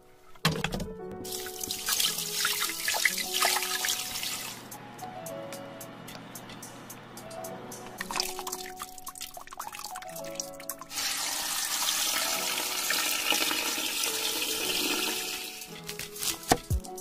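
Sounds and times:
background music: 0.0 - 17.0
water pouring into a pot: 1.3 - 4.6, 8.0 - 15.7.

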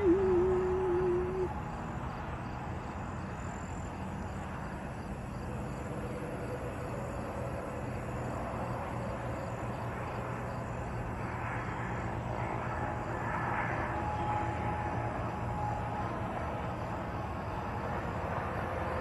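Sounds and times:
low even hum: 0.0 - 2.4
faint insect chirping: 0.0 - 19.0.

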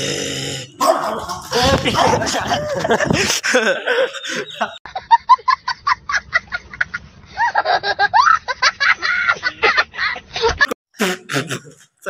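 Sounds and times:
young child laughing: 1.4 - 4.7.

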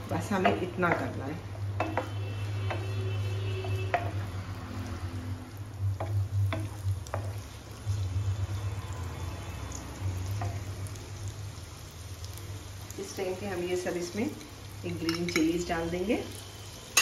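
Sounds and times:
onions sizzling in oil: 0.0 - 17.0
wooden spatula knocking pan: 0.1 - 4.3, 6.0 - 7.4.

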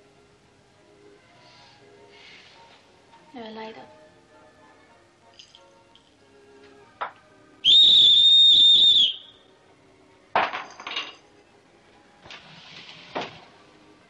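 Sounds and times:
whistle blown: 7.6 - 9.4.

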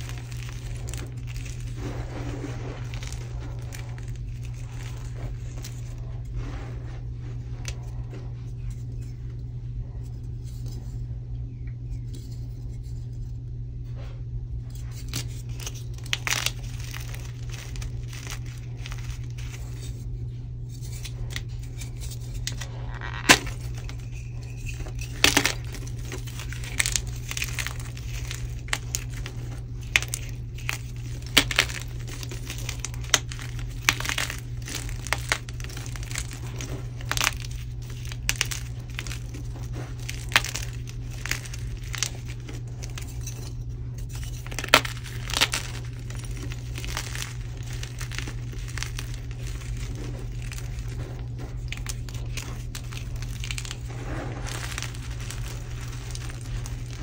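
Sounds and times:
chalk block crunching: 0.0 - 6.8, 14.8 - 20.1, 20.8 - 57.0
low hum: 0.0 - 57.0
chalk block cracking: 22.1 - 43.5, 44.1 - 57.0.

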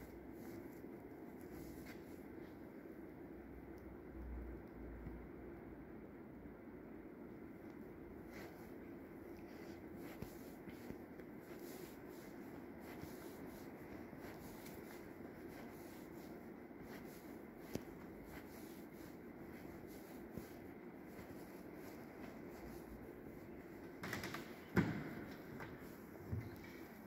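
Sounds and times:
footsteps on carpet: 8.2 - 24.0.

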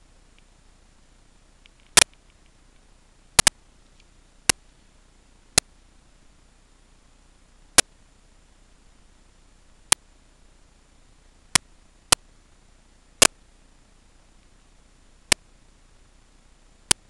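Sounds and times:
faint steady hiss: 0.0 - 17.0
sharp clicks: 1.6 - 4.6.

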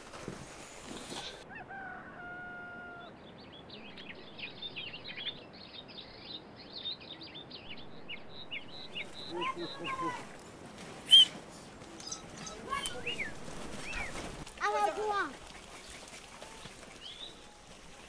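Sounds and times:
rooster crowing: 1.4 - 3.2
small birds chirping: 3.0 - 18.0.

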